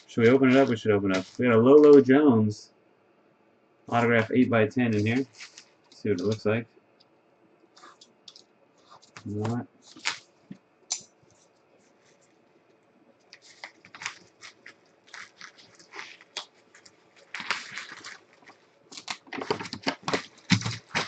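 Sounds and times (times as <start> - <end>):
bubble wrap crinkling: 0.0 - 2.1, 4.0 - 6.4, 7.8 - 10.6, 13.2 - 21.0.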